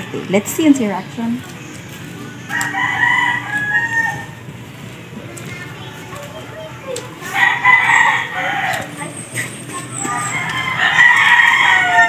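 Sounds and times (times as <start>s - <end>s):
rooster crowing: 2.5s - 4.4s, 7.3s - 9.0s, 10.1s - 12.0s.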